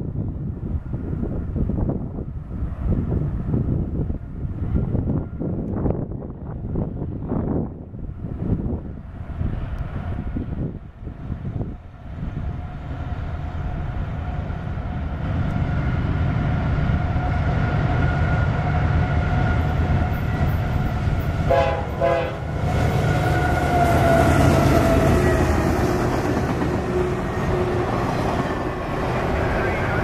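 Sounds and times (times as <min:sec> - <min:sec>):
diesel locomotive rumble: 0:00.0 - 0:30.0
locomotive whine: 0:00.2 - 0:30.0
train horn blasts: 0:21.4 - 0:25.6.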